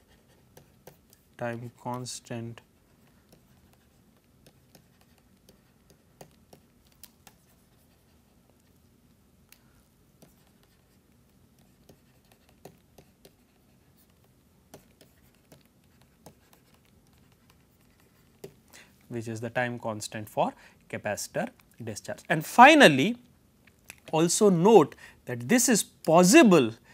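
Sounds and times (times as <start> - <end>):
stylus clicking and scratching: 0.0 - 8.8, 9.4 - 18.8, 23.6 - 24.4.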